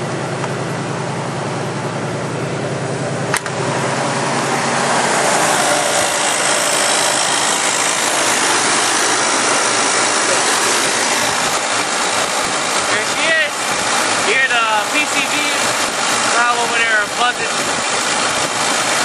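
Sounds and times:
car engine idling: 0.0s - 19.0s
carburetor hissing buzz: 3.4s - 18.1s.

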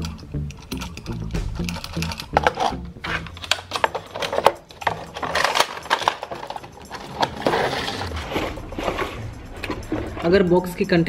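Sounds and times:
packaging clicks and taps: 0.0s - 8.0s
plastic packaging crinkling: 1.9s - 9.8s.

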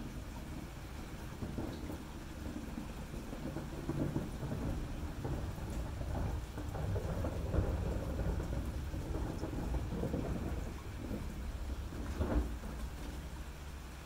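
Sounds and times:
distant thunder rumbling: 0.0s - 14.0s
steady rain: 0.0s - 14.0s.

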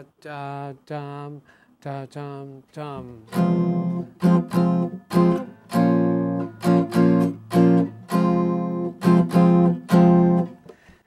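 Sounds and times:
jazz guitar strumming chords: 3.1s - 10.6s.

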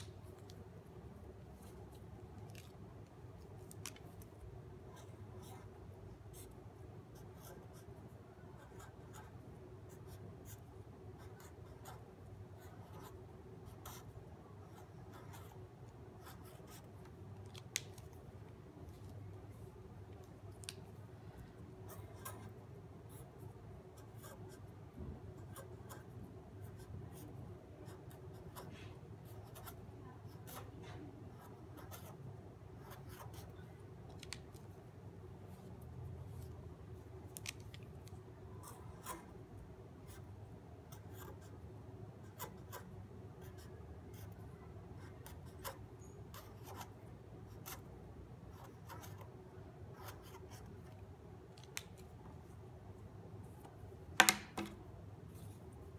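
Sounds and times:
steady low hum: 0.0s - 55.9s
marker scratching on paper: 4.8s - 18.3s, 21.8s - 23.4s, 24.0s - 24.7s, 25.4s - 32.2s, 32.8s - 34.7s, 42.2s - 44.4s, 45.0s - 47.9s, 48.5s - 49.3s, 49.9s - 51.0s.

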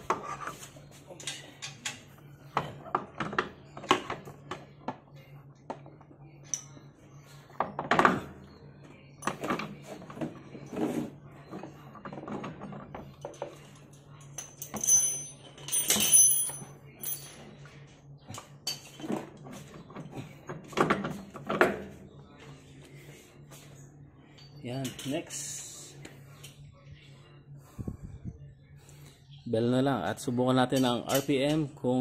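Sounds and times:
metallic jingle and clatter: 14.2s - 17.5s.

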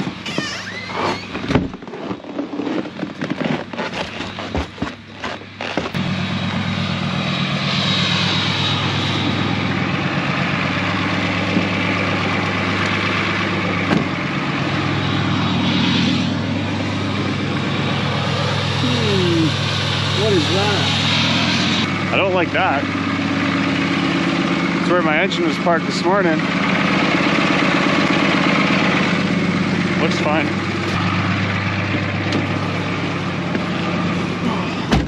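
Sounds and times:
diesel engine idling: 0.0s - 35.0s
footsteps crunching on snow: 1.8s - 6.0s.

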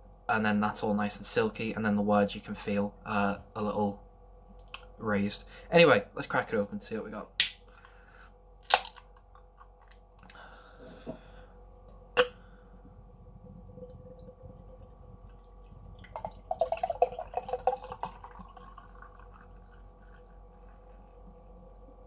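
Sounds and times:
beer pouring into glass: 13.6s - 20.8s.

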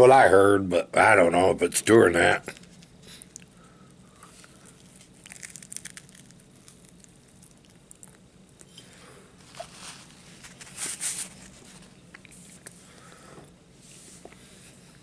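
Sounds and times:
man chewing crunchy food: 2.4s - 8.7s.

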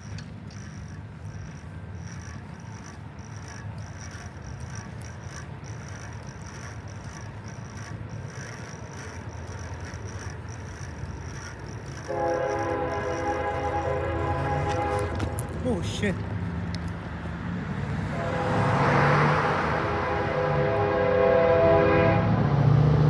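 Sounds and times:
locomotive air horn: 12.1s - 15.4s, 18.1s - 22.6s.

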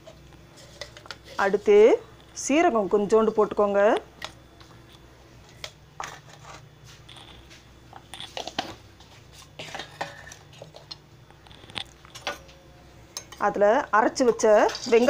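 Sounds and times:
small crackles and pops: 10.6s - 12.2s.

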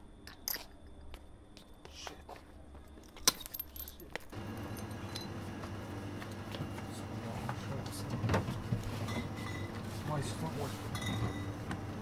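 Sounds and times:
low background hum: 0.0s - 12.0s
light clicks and clinks: 3.0s - 5.4s
louder steady hum: 4.3s - 12.0s.

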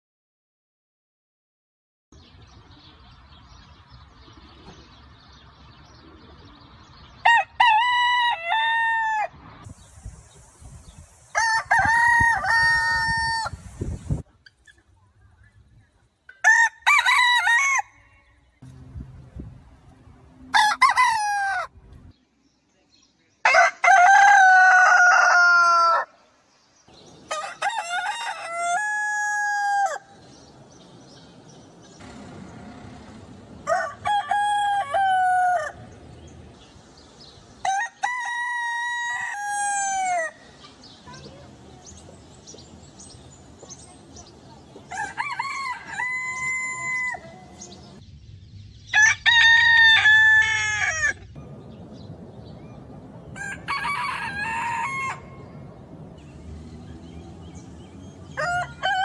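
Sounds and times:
rooster crowing: 7.2s - 9.4s, 11.4s - 13.6s, 16.4s - 18.4s, 20.5s - 21.7s, 23.5s - 26.2s, 27.3s - 30.2s, 33.6s - 35.8s, 37.6s - 40.4s, 44.9s - 48.0s, 49.0s - 51.2s, 53.3s - 56.3s, 57.1s - 59.0s.

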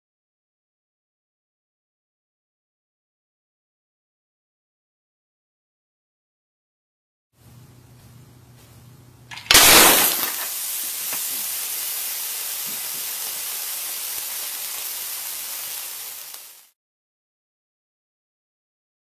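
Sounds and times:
steady hiss: 7.5s - 16.8s
glass shattering crash: 9.3s - 11.3s.

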